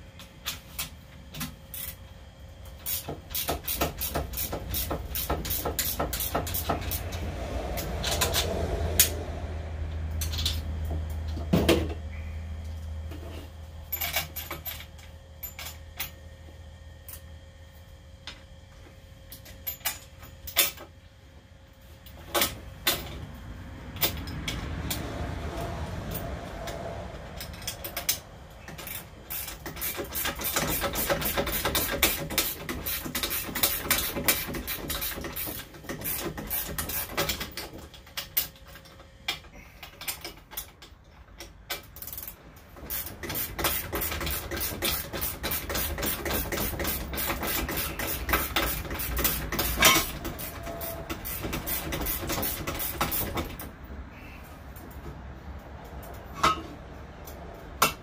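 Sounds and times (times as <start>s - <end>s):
ratchet rapid clicking: 27.5s - 37.7s, 41.8s - 50.5s, 51.1s - 53.5s.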